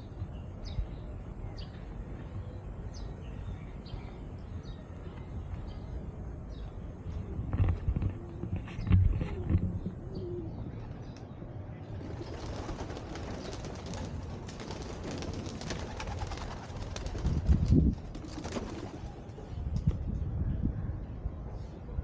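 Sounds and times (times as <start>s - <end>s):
outdoor background noise: 0.0s - 22.0s
pigeons cooing: 8.1s - 11.0s.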